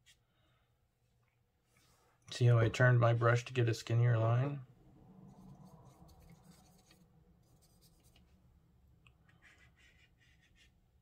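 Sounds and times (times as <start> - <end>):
paintbrush scratching on paper: 5.2 - 8.4, 9.3 - 11.0.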